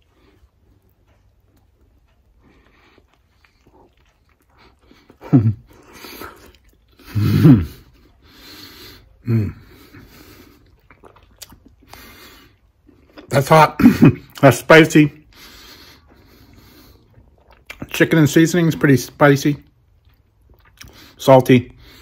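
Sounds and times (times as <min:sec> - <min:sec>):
man chewing: 0:00.0 - 0:13.4, 0:14.2 - 0:14.5, 0:15.2 - 0:22.0
heavy breaths: 0:04.5 - 0:10.8, 0:15.2 - 0:17.2.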